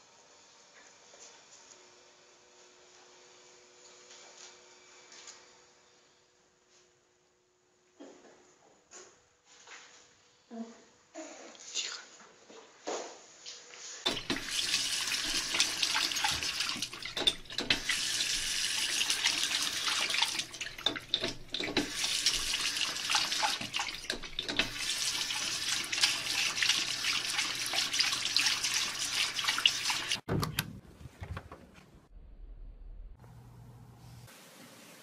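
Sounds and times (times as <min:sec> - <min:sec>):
tap water splashing into basin: 0:14.1 - 0:30.2.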